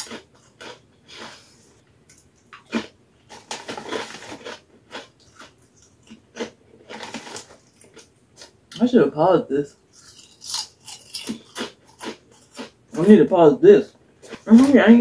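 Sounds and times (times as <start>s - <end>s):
potato chips crunching: 0.0s - 1.4s, 2.1s - 8.6s, 9.9s - 13.2s
chip bag rustling: 3.3s - 5.8s, 6.8s - 8.0s.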